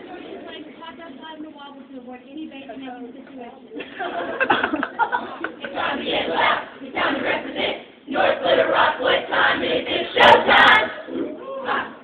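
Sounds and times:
group singing choir-style: 0:05.4 - 0:12.0.

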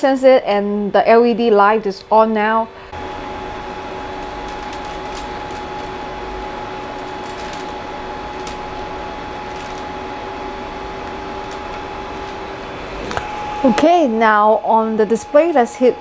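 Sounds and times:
faint steady whine: 0:00.0 - 0:16.0
printer mechanical hum: 0:02.4 - 0:16.0.

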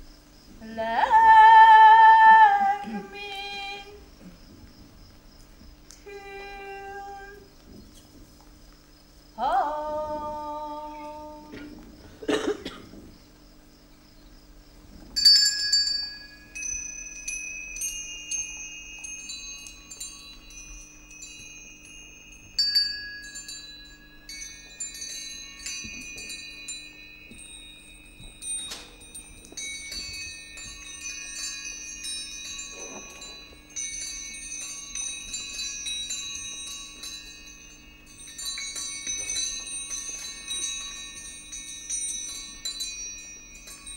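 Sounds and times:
steady low hum: 0:00.0 - 0:43.9
high chiming tones: 0:15.2 - 0:43.9.

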